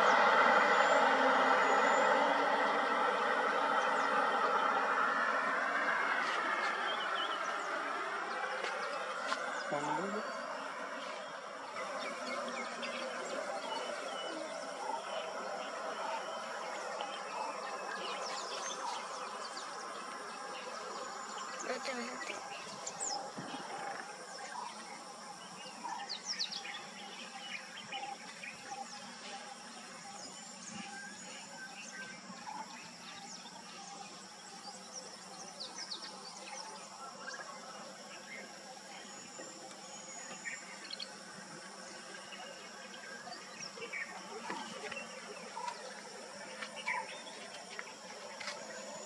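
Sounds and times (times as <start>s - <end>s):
insects droning: 0.0s - 49.0s
wild birds chirping: 0.0s - 49.0s.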